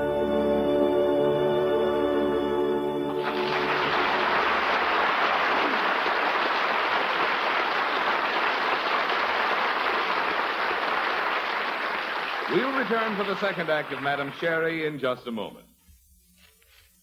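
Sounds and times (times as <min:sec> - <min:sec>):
audience applauding: 0:03.2 - 0:15.0.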